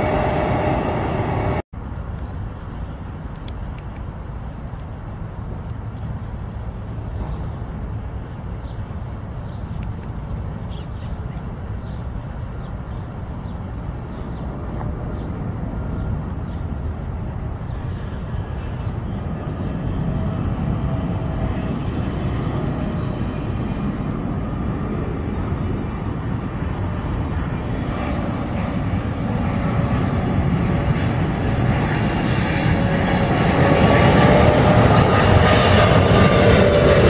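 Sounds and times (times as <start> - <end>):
jet engines roaring with whine: 0.0 - 37.0.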